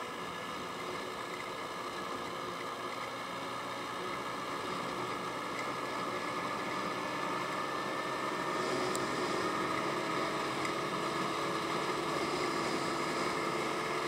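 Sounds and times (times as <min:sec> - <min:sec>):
scooter engine running: 0:00.0 - 0:14.0
wind and road noise: 0:04.8 - 0:14.0.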